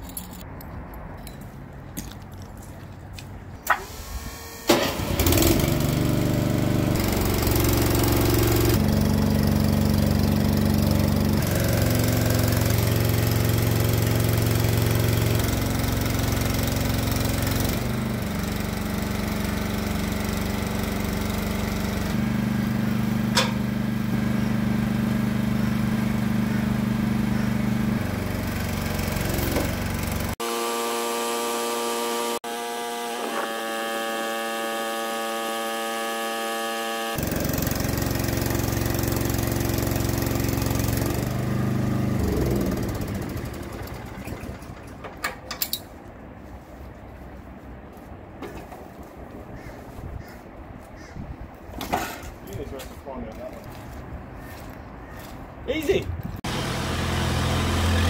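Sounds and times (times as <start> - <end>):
small engine running: 3.8 - 45.0, 56.4 - 58.0.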